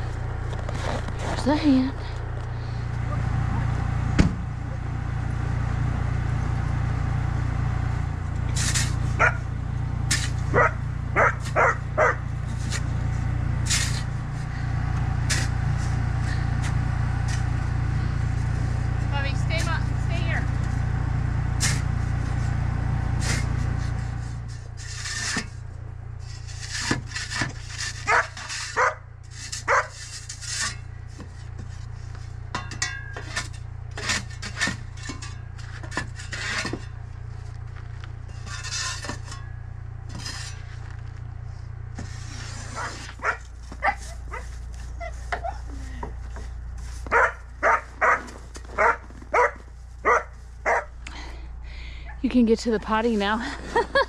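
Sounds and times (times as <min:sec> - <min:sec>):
steady low hum: 0:00.0 - 0:54.0
shovel scraping snow: 0:00.5 - 0:01.8, 0:08.5 - 0:09.3, 0:10.0 - 0:17.4, 0:21.6 - 0:25.6, 0:26.2 - 0:32.2, 0:41.9 - 0:45.4
dog barking: 0:10.5 - 0:12.2, 0:28.1 - 0:29.0, 0:29.7 - 0:29.9, 0:47.1 - 0:50.9.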